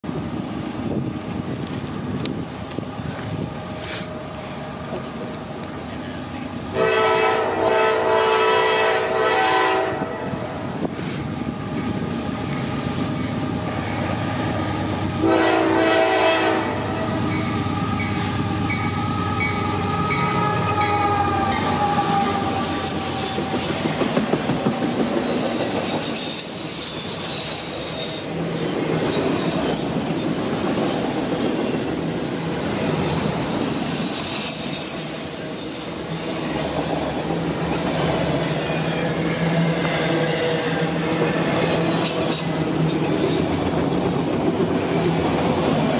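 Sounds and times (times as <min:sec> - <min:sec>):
train cars rumbling: 0:00.0 - 0:45.9
train air horn: 0:06.7 - 0:11.2, 0:15.2 - 0:18.0, 0:19.6 - 0:23.8
train wheels clacking: 0:17.3 - 0:45.9
high wheel squeals: 0:24.6 - 0:31.0, 0:32.6 - 0:36.9.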